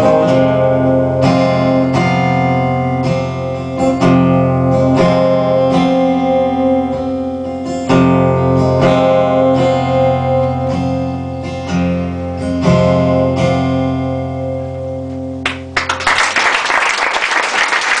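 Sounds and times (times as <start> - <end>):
guitar chords strummed: 0.0 - 15.9
audience applauding: 15.4 - 18.0.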